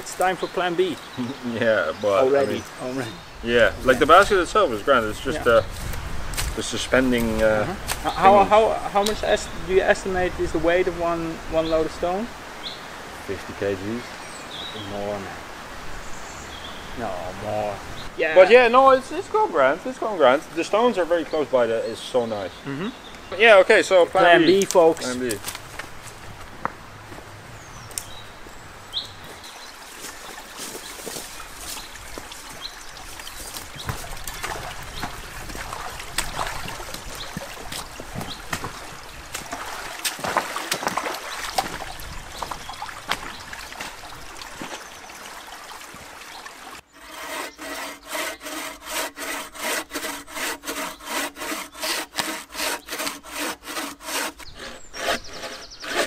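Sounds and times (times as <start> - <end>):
footsteps: 24.6 - 27.3, 29.2 - 44.8
hand saw cutting a log: 46.9 - 56.0.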